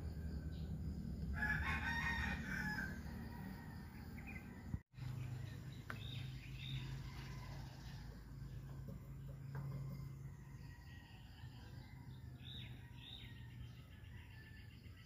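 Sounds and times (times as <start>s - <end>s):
rooster crowing: 0.0s - 4.8s, 6.7s - 8.2s.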